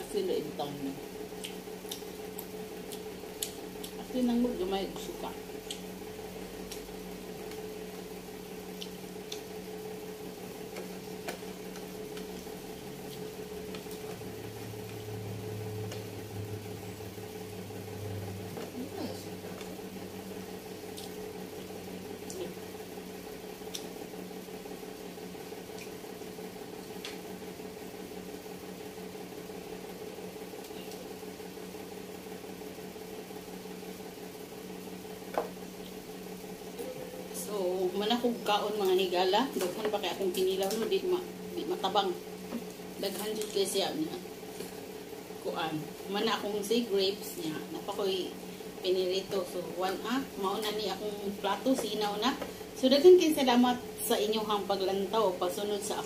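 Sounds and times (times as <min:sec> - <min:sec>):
lower hum: 0:00.0 - 0:56.0
steady electrical hum: 0:00.0 - 0:56.0
faint clicks and taps of eating: 0:01.4 - 0:04.0, 0:08.8 - 0:09.5.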